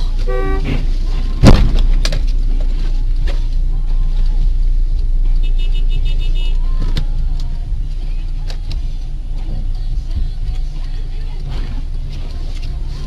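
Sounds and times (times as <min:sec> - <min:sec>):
engine and road rumble: 0:00.0 - 0:13.0.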